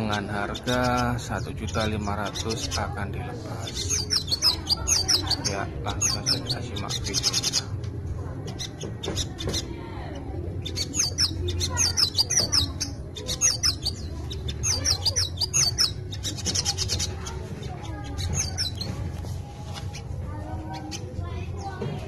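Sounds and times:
bird twittering chirps: 0.0 - 7.8, 10.6 - 18.9.

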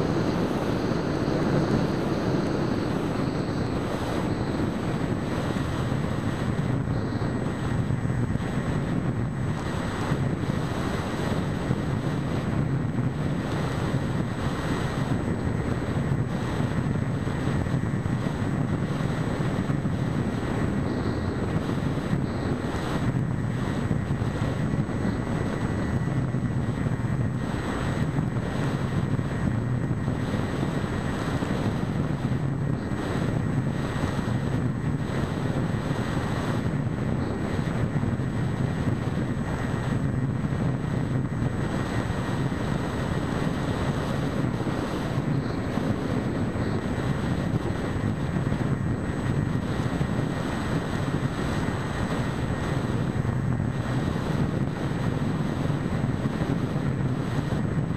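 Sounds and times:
electric motor spinning propeller: 0.0 - 7.9
faint high whine: 0.0 - 57.9
wind rush on microphone: 0.0 - 57.9.

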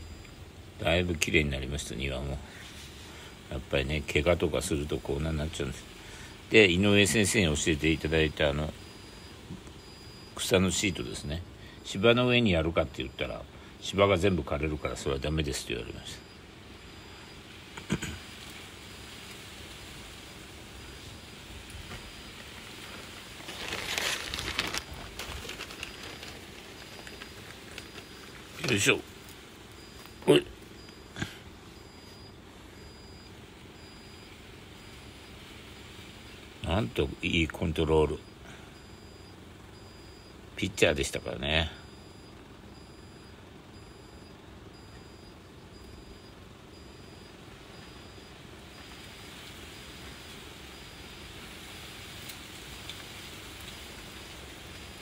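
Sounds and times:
refrigerator door alarm beeping: 0.0 - 2.5, 3.5 - 5.9, 6.5 - 19.2, 20.2 - 52.2
faint background noise: 0.0 - 55.0
rustling and crinkling: 20.9 - 36.6.

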